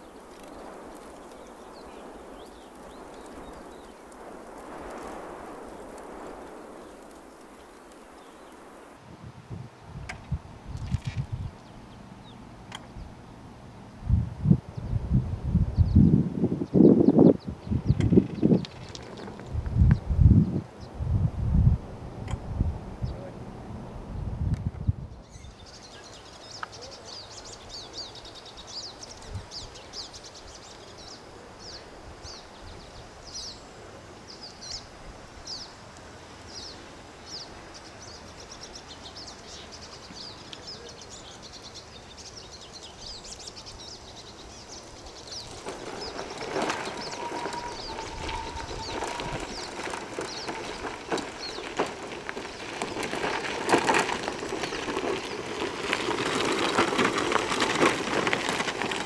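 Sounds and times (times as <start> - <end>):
small birds chirping: 0.0 - 9.0, 10.0 - 13.4, 15.7 - 21.0, 23.0 - 23.4, 24.8 - 35.8, 36.4 - 59.0
wheels on gravel: 0.0 - 9.0, 9.7 - 20.7, 25.2 - 59.0
electric wheelchair motor whine: 45.5 - 55.0.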